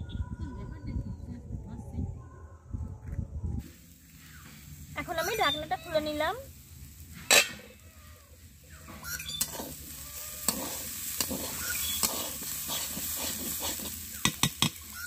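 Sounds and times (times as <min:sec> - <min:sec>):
greens sizzling in pan: 0:03.7 - 0:15.0
spatula scraping pan: 0:07.1 - 0:07.8, 0:08.8 - 0:15.0.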